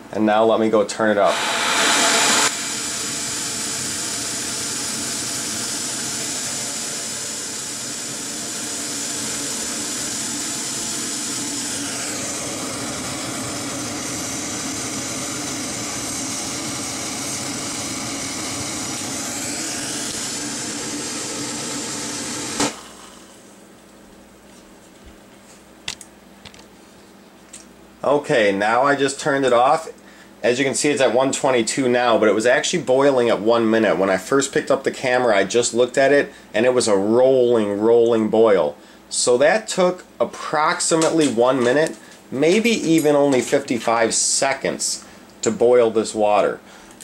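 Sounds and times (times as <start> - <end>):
gas stove burner hissing: 0.9 - 23.6, 38.8 - 47.0.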